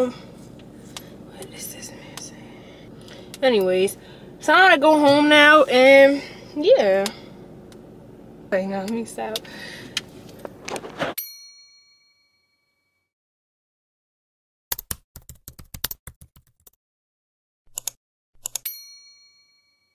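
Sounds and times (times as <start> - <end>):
in-car handling noise: 9.9 - 11.2
keyboard typing clicks: 14.7 - 16.5, 17.7 - 18.6.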